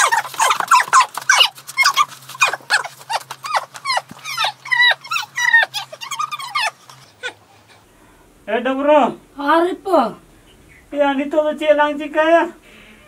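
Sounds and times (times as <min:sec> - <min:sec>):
high-pitched yelps: 0:00.0 - 0:07.4.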